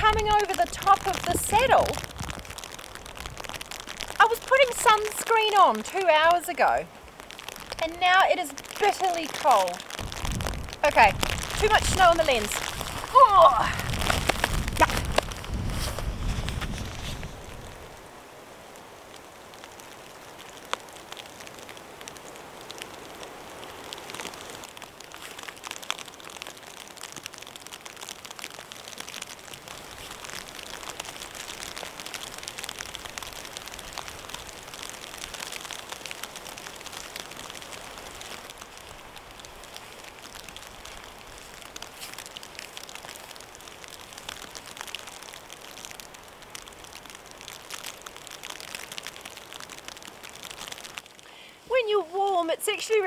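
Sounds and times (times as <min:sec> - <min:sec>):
sleet pattering: 0:00.1 - 0:17.8.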